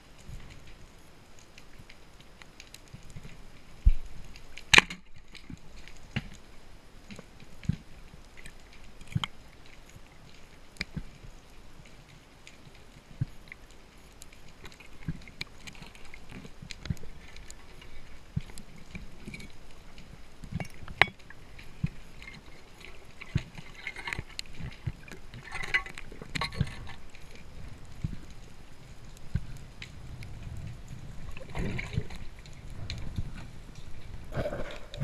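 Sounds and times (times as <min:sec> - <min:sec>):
hissing crackling noise: 0:00.0 - 0:35.0
underwater clicks and knocks: 0:14.6 - 0:28.5, 0:29.2 - 0:35.0.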